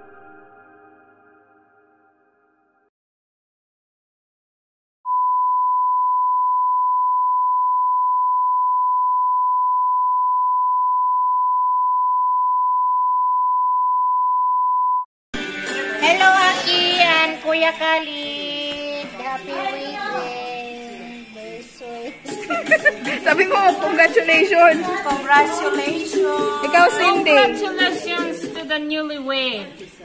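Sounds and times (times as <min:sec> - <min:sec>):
voices: 0:16.0 - 0:30.0.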